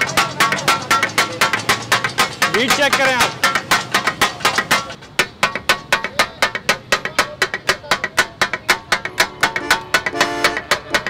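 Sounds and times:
metal spatulas striking griddle: 0:00.0 - 0:11.0.

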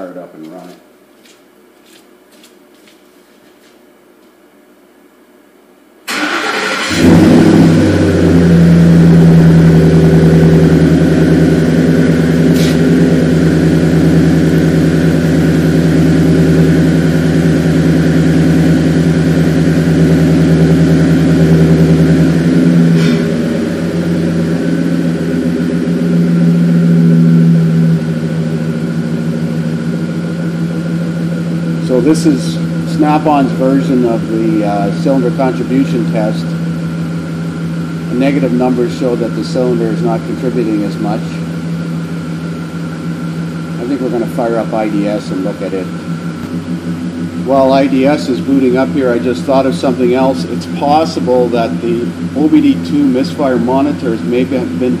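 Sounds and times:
engine starter cranking: 0:06.1 - 0:07.4
engine idling: 0:06.1 - 0:55.0.

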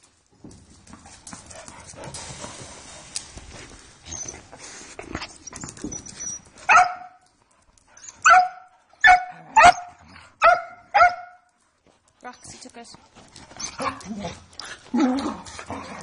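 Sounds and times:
dogs scuffling: 0:00.0 - 0:08.3, 0:11.5 - 0:16.0
dog barking: 0:06.7 - 0:07.2, 0:08.2 - 0:11.4.

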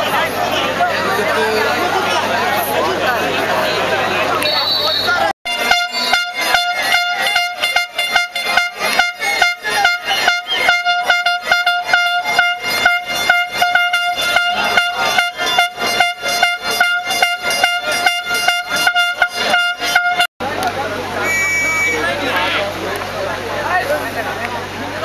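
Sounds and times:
horn holding high note: 0:05.1 - 0:20.3, 0:21.1 - 0:22.2.

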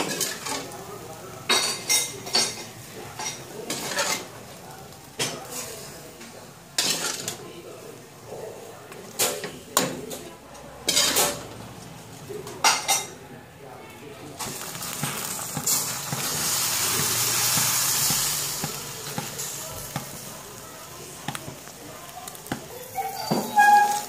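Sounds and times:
water pouring into a pot: 0:14.4 - 0:22.8
metal ladle scraping a pot: 0:23.1 - 0:24.0.

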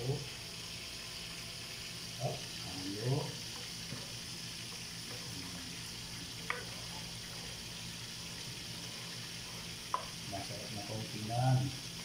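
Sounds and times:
sauce bubbling in a pot: 0:00.0 - 0:12.0
spatula stirring: 0:03.4 - 0:10.1.

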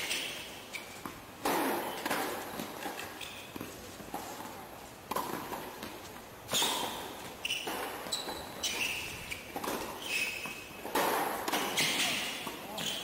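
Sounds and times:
balls bouncing on hard court: 0:00.0 - 0:13.0
tennis balls struck by rackets: 0:00.0 - 0:13.0
short high squeaks: 0:06.5 - 0:10.7.

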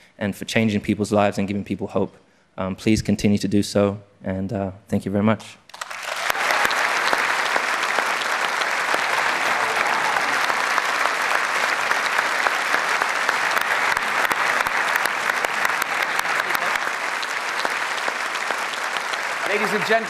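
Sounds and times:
audience applauding: 0:05.7 - 0:20.0.

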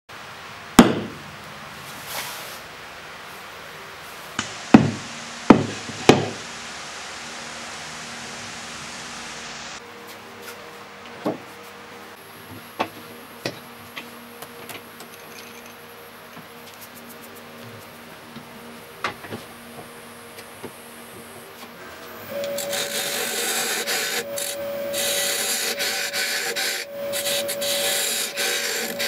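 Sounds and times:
hard knocks on wood: 0:00.8 - 0:01.2, 0:04.4 - 0:06.4.

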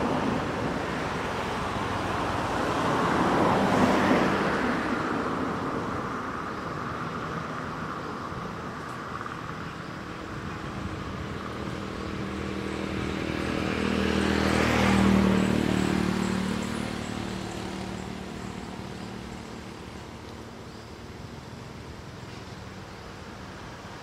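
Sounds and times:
motor vehicle passing by: 0:10.0 - 0:20.5.

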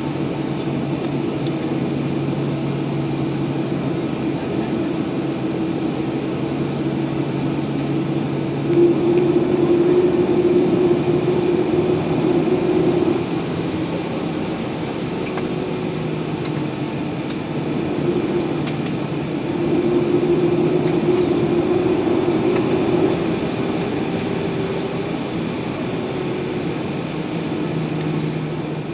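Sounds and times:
jet engines idling hum: 0:00.0 - 0:28.9
cabin air rushing: 0:06.9 - 0:15.1.

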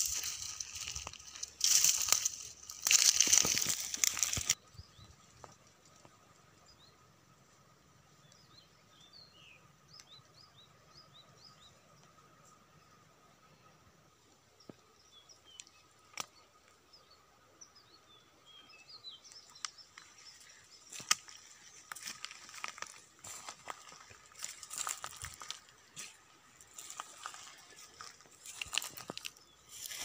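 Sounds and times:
footsteps through dry grass: 0:00.0 - 0:04.6, 0:19.3 - 0:30.0.

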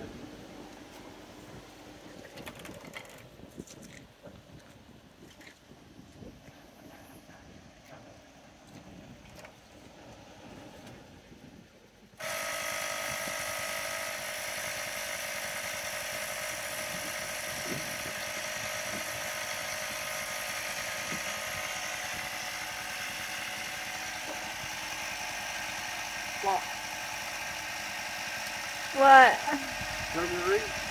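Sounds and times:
electric tire inflator whining: 0:12.2 - 0:30.9.

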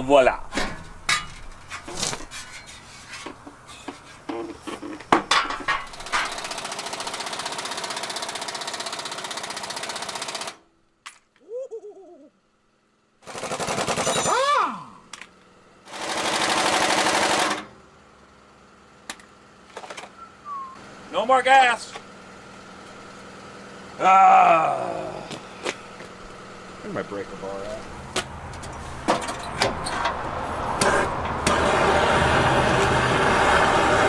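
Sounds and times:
metal parts clanking: 0:00.5 - 0:04.1, 0:04.8 - 0:06.5
impact wrench hammering: 0:05.1 - 0:09.4.

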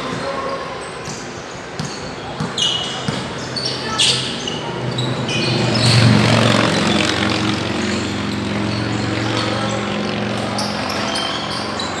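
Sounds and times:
sneaker squeaks on court: 0:00.0 - 0:12.0
basketball bouncing: 0:01.0 - 0:03.4
vehicle engine passing: 0:04.8 - 0:12.0.

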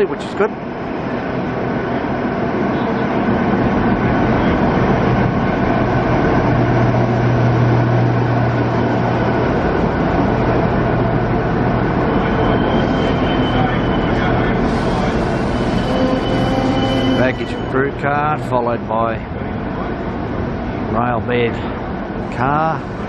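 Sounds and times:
low engine hum: 0:00.0 - 0:15.6
train rolling rumble: 0:00.0 - 0:23.0.

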